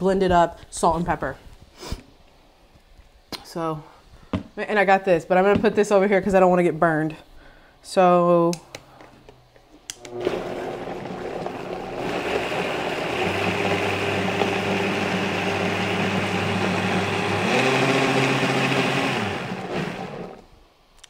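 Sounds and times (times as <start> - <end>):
blender whirring: 10.0 - 20.5.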